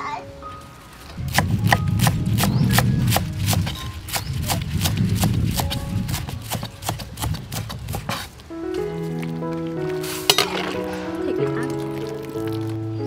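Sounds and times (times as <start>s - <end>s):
knife chopping on wooden board: 1.3s - 8.3s.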